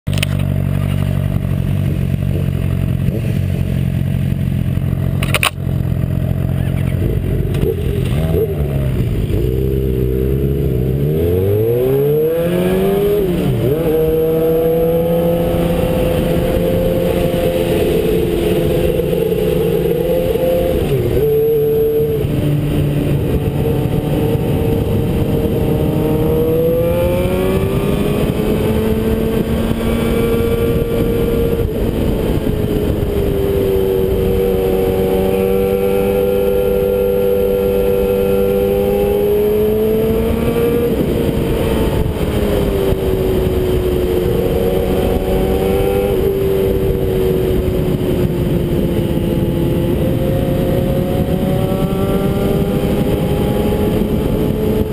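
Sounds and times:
motorcycle engine revving: 0.1s - 54.9s
sharp click: 5.2s - 5.6s.

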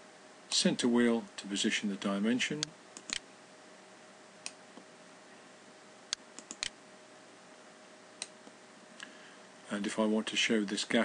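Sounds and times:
faint steady hum: 0.0s - 11.0s
computer mouse clicking: 2.6s - 3.2s, 6.1s - 6.8s.

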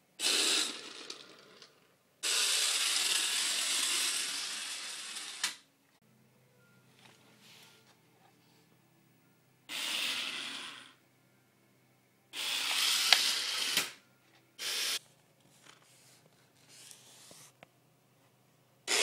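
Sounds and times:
toy helicopter motor whirring: 0.2s - 1.3s, 2.2s - 5.7s, 9.7s - 11.0s, 12.4s - 14.0s, 14.6s - 15.0s.

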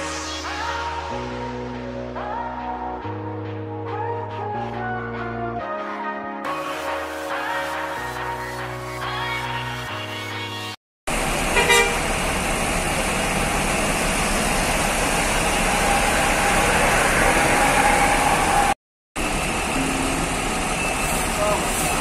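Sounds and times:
bus engines running: 11.1s - 22.0s
short horn toot: 11.6s - 12.0s.

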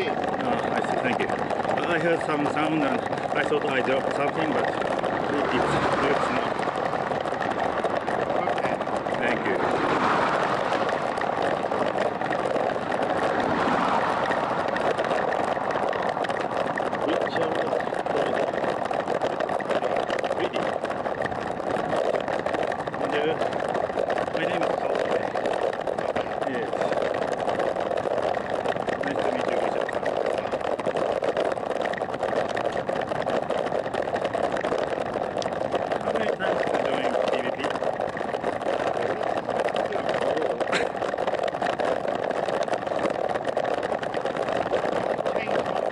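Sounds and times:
bicycle tyre noise on asphalt: 0.0s - 45.9s
road noise: 0.0s - 45.9s
wind on microphone: 0.0s - 45.9s
wind rushing: 5.0s - 17.1s.

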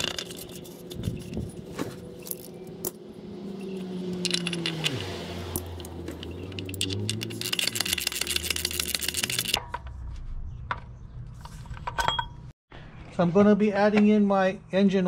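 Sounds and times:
tools shifting: 0.0s - 10.0s
oil filter clicking and clinking: 4.2s - 9.6s.

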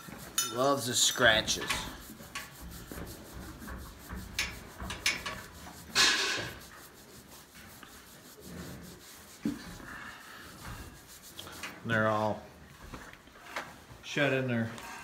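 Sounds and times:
hand scratching hairy coat: 0.0s - 12.0s.

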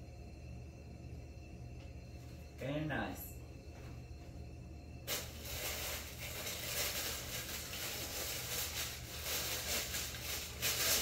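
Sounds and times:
low steady hum: 0.0s - 11.0s
tissue paper rustling: 5.1s - 11.0s.

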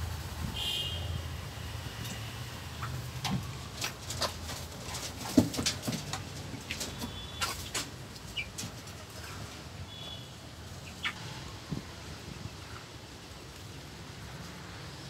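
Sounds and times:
clicks and scratches of chickens: 1.9s - 9.8s, 10.7s - 14.7s.

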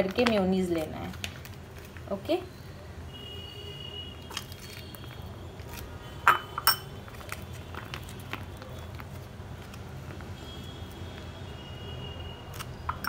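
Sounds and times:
steel spoon clinking glass bowl: 6.3s - 6.9s.

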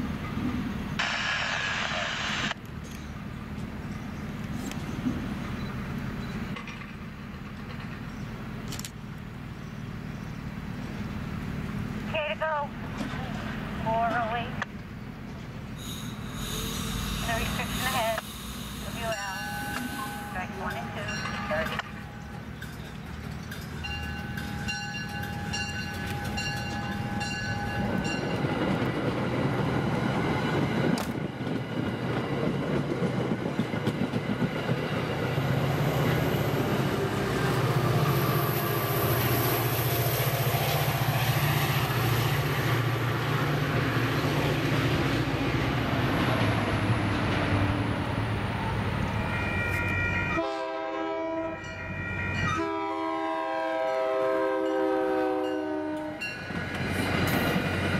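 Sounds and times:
train coaches rumbling on rails: 0.0s - 57.9s
diesel engine running: 15.8s - 20.3s
train air horn: 15.8s - 20.4s, 50.4s - 51.6s, 52.5s - 56.2s
locomotive bell ringing: 16.6s - 28.4s, 49.3s - 50.4s, 51.6s - 52.8s, 54.6s - 56.6s.

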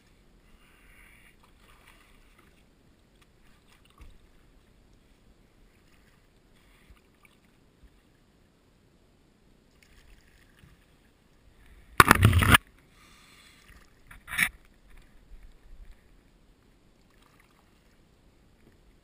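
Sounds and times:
kayak paddle splashing: 1.4s - 4.7s, 12.0s - 12.6s, 17.0s - 18.0s
sharp splash or knock: 12.0s - 12.6s.

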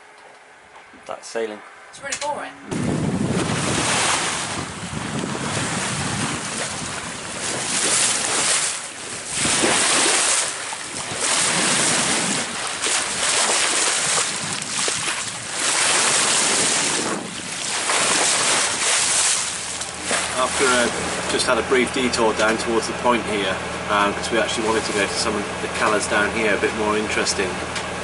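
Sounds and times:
wind buffeting the microphone: 2.6s - 21.3s
water rushing along a hull: 2.7s - 28.0s.

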